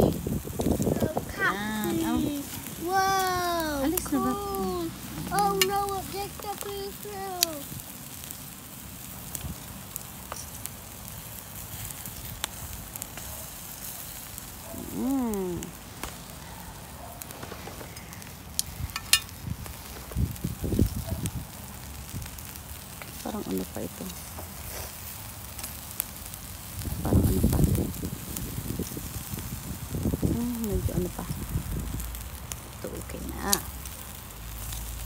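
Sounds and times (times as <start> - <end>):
food sizzling on a grill: 0.0 - 35.0
sharp clicks and pops: 17.3 - 21.4.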